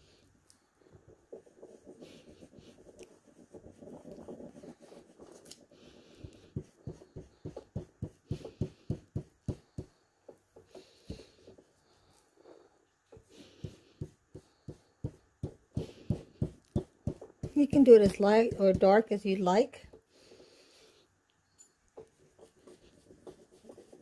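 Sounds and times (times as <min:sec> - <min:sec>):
ink tool rubbing on paper: 0:01.2 - 0:09.9, 0:13.3 - 0:19.0, 0:22.2 - 0:24.0.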